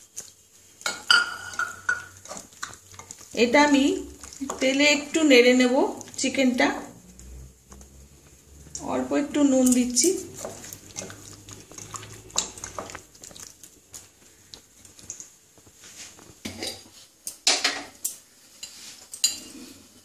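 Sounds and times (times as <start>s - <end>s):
hands mixing raw chicken: 0.0s - 16.9s
dishes knocking and clinking: 0.8s - 2.2s, 16.4s - 18.0s.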